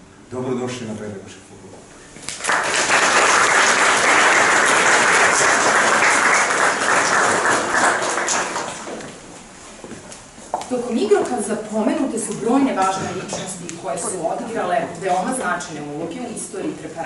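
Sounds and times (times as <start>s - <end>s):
audience applauding: 2.3s - 9.2s.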